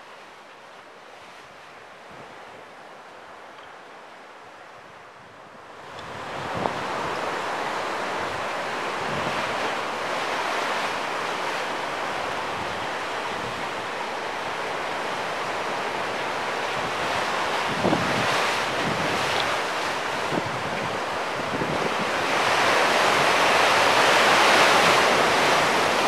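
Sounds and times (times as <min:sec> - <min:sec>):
ocean surf rushing: 0:04.6 - 0:26.0
wind buffeting microphone: 0:05.2 - 0:10.4, 0:16.7 - 0:26.0.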